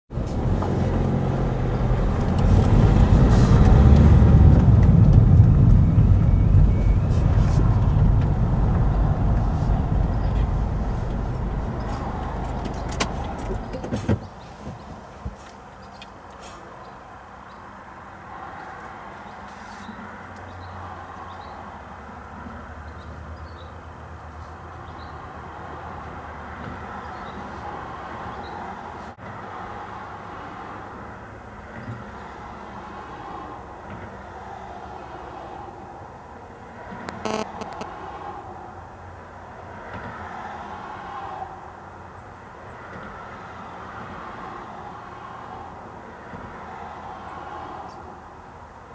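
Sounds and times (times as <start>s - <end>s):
car engine and tyre noise: 0.1s - 48.9s
road traffic noise: 0.1s - 48.9s
low drone: 0.2s - 13.7s.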